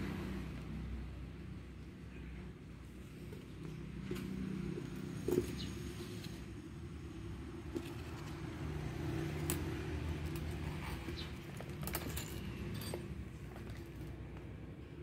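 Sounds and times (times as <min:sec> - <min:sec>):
metal buckles clicking and clinking: 0:09.2 - 0:14.5.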